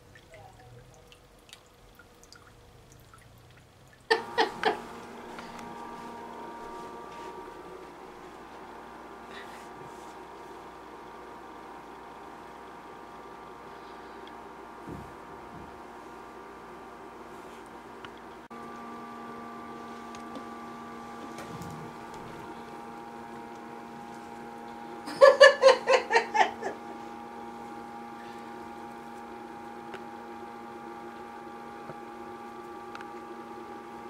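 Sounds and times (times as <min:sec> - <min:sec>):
steady multi-tone hum: 0:00.0 - 0:34.0
person laughing high-pitched: 0:04.1 - 0:04.8, 0:25.0 - 0:26.8.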